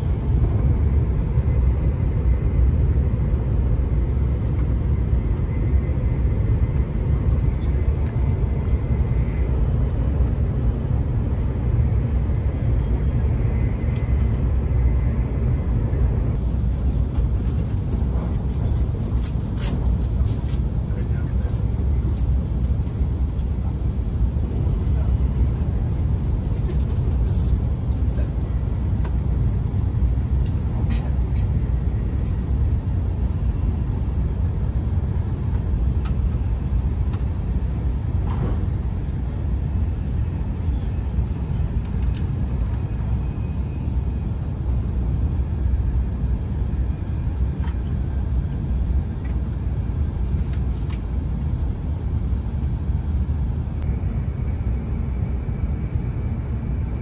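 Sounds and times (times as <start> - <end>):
train rumble from inside cabin: 0.0 - 57.0.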